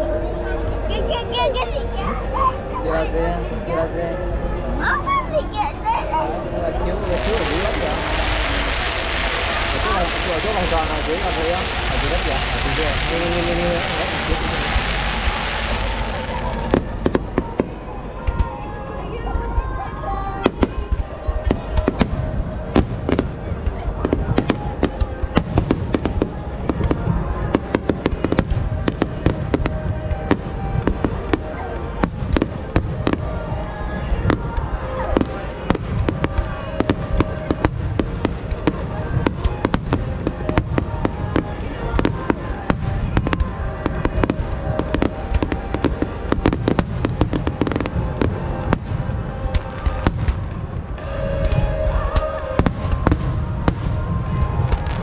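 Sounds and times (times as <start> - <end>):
fireworks bangs and crackles: 6.3 - 19.6, 20.4 - 55.0
low rumble of booms: 20.4 - 55.0.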